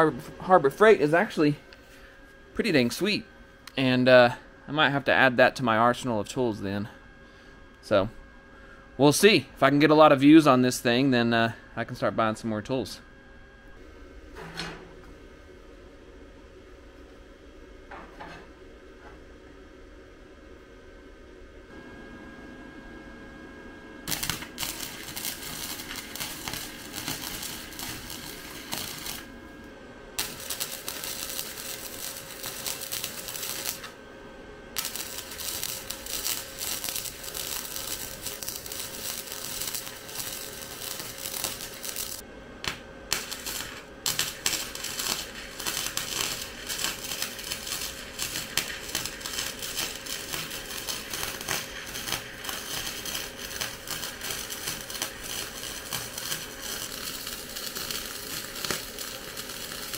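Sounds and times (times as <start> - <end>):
wire welder crackling and sputtering: 24.0 - 29.6, 30.2 - 34.0, 34.7 - 59.9.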